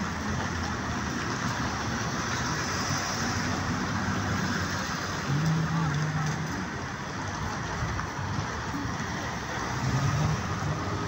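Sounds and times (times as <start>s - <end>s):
road traffic going by: 0.0s - 11.0s.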